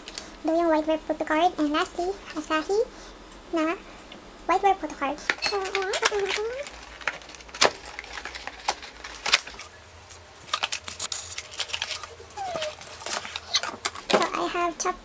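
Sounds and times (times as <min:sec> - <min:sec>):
person speaking: 0:00.4 - 0:06.8, 0:14.1 - 0:15.0.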